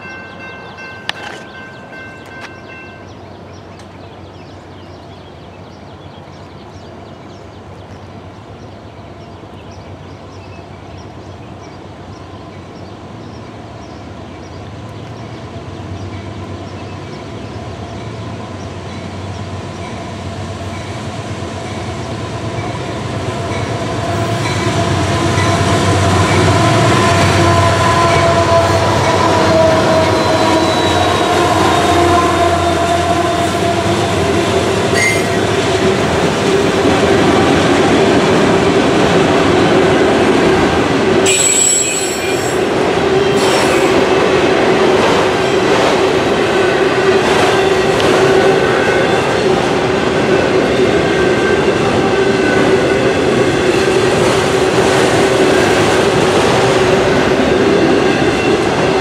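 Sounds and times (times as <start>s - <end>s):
crossing bell ringing: 0.0s - 3.4s, 41.2s - 42.7s
freight train passing: 0.0s - 59.0s.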